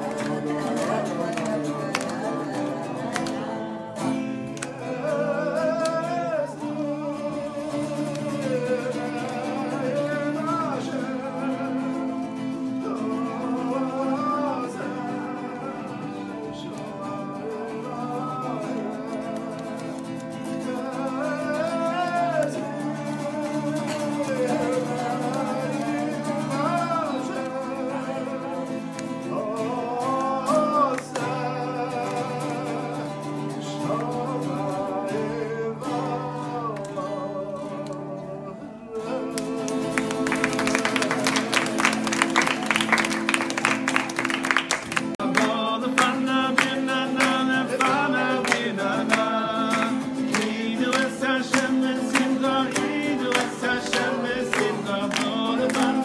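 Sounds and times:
listeners clapping along: 0:00.0 - 0:06.6, 0:07.3 - 0:10.8, 0:18.1 - 0:27.7, 0:28.8 - 0:34.3, 0:39.2 - 0:56.0
acoustic guitar strumming: 0:00.0 - 0:56.0
man singing: 0:00.0 - 0:56.0.

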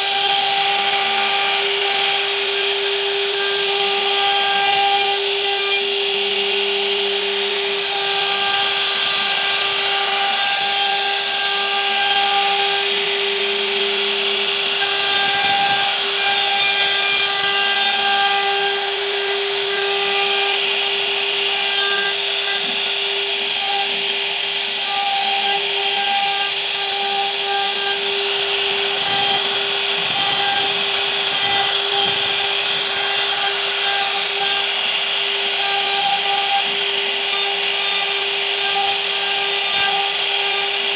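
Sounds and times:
router spindle whine: 0:00.0 - 0:40.9.

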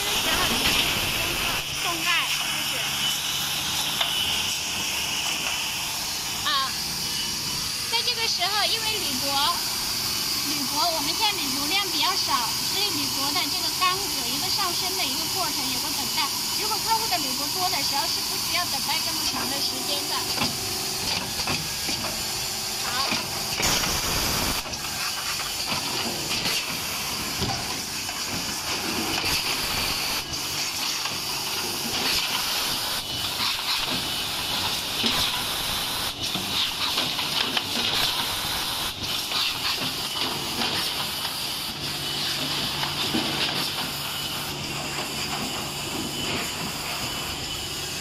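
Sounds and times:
compressed air hiss: 0:00.0 - 0:45.8
pneumatic cylinder clicks: 0:20.3 - 0:41.7.

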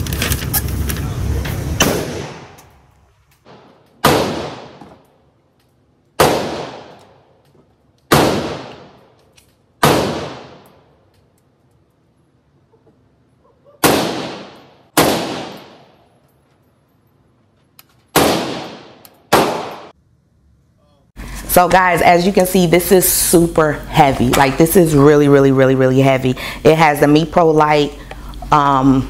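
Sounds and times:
rifle shots echoing: 0:03.5 - 0:04.8, 0:06.2 - 0:07.2, 0:08.1 - 0:09.1, 0:09.8 - 0:10.9, 0:13.8 - 0:16.0, 0:18.1 - 0:19.9.

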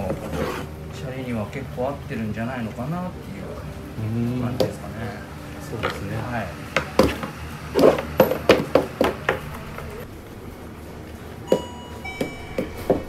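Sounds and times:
faint ringing tone: 0:11.4 - 0:13.0.

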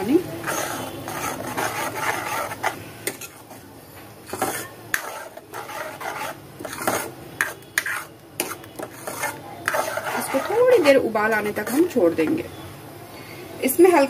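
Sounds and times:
ladle scraping metal pan: 0:00.4 - 0:03.6, 0:04.3 - 0:12.0.

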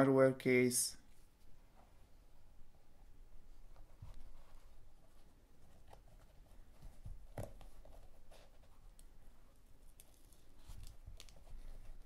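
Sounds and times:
soft fabric rustling: 0:01.1 - 0:12.0.

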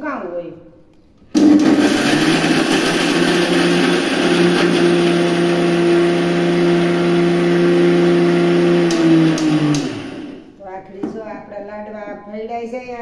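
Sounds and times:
mixer grinder motor hum: 0:01.4 - 0:10.6.

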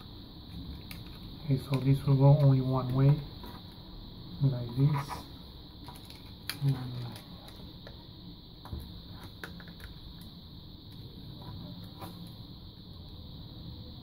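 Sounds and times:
high-pitched hiss: 0:00.0 - 0:14.0
plastic parts clicking and tapping: 0:08.7 - 0:10.0.

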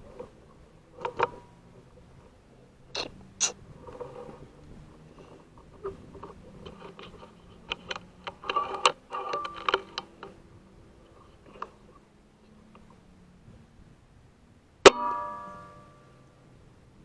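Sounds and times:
rifle handling clicks and knocks: 0:05.6 - 0:10.4.

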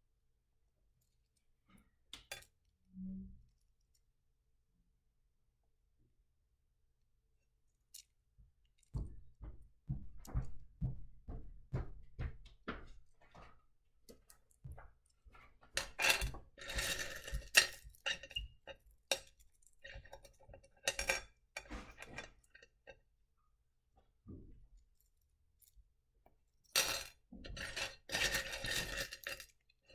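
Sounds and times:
stones clattering in bowl: 0:26.7 - 0:29.6.

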